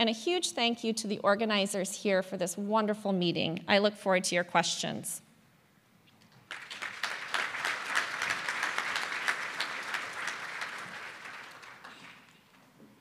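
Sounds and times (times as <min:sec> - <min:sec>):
audience applauding: 0:06.5 - 0:12.6.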